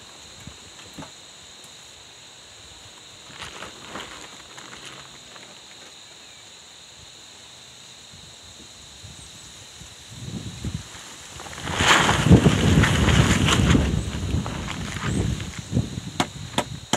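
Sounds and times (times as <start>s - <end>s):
knocks of logs being handled: 16.2s - 16.8s.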